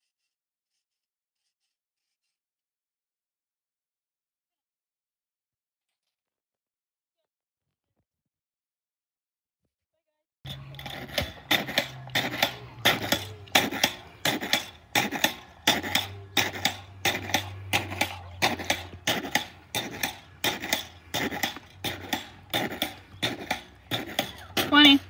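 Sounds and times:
pogo stick bouncing on concrete: 10.5 - 25.0.

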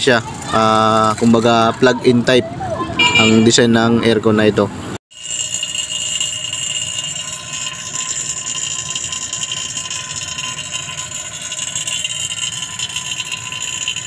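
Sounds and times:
vacuum pump high whine: 5.2 - 14.0.

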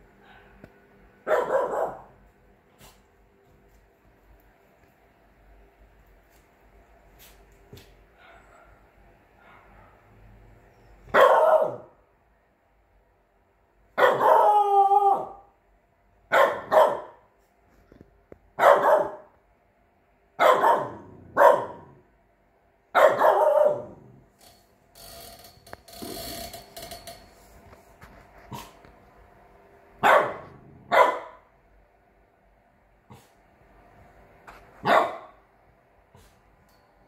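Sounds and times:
puppy barking: 1.2 - 2.2, 8.2 - 10.1, 11.1 - 12.0, 14.0 - 15.5, 16.3 - 17.3, 18.6 - 19.3, 20.4 - 22.0, 22.9 - 24.1, 30.0 - 31.5, 34.8 - 35.4.

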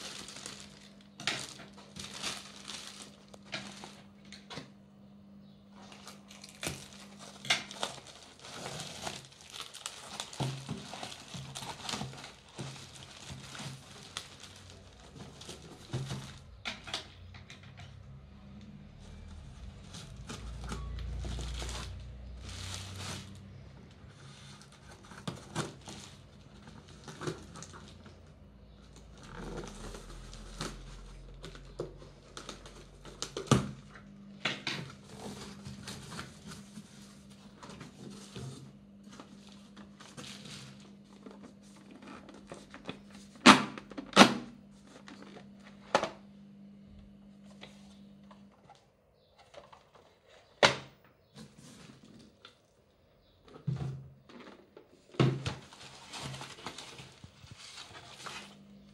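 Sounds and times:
cardboard rustling and scraping: 0.0 - 4.2, 5.8 - 16.6, 19.0 - 33.5, 34.8 - 43.4, 51.3 - 52.5, 53.2 - 58.9.

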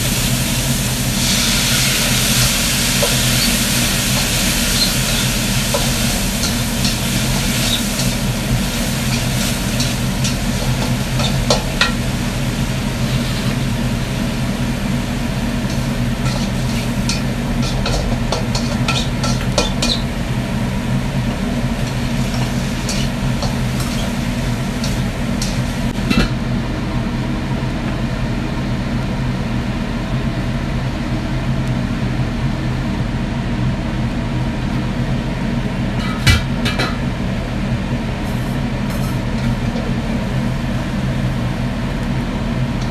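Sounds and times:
food sizzling in a wok: 0.0 - 26.5, 38.1 - 42.9
range hood fan hum: 0.0 - 42.9
metal spatula scraping a wok: 1.2 - 12.0, 13.0 - 13.6, 15.7 - 20.1, 21.8 - 25.9.

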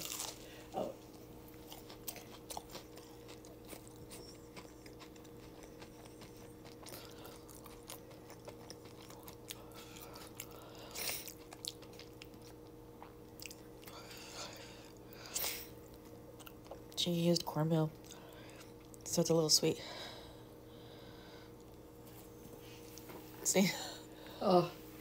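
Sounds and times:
person chewing crunchy food: 0.0 - 17.0, 18.0 - 19.1.

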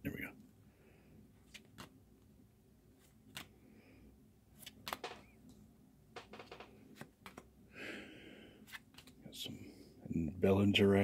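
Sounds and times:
cards flipping by hand: 1.4 - 2.3, 2.9 - 3.8, 4.5 - 5.6, 6.2 - 7.6, 8.6 - 9.2.

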